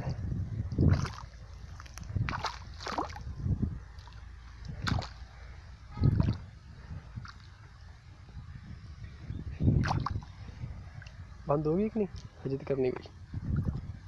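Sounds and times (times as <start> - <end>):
feet squelching through mud: 0.0 - 5.5, 7.1 - 7.6, 9.8 - 10.3
low steady rumble: 0.0 - 14.0.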